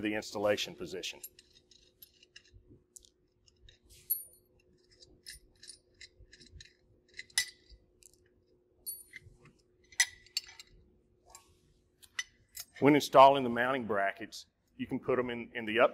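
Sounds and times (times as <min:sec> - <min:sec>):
small metallic clicks and clinks: 0:01.2 - 0:12.8.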